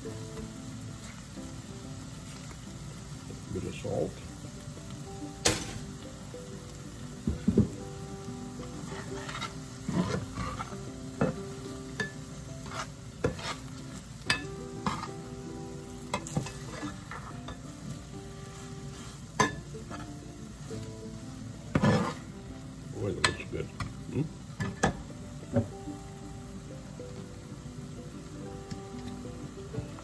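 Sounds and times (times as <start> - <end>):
vegetables sizzling in a frying pan: 0.0 - 30.0
spatula scraping a pan: 8.7 - 11.4, 12.5 - 14.1, 14.7 - 15.3, 16.2 - 17.6, 18.4 - 20.3, 21.6 - 22.5.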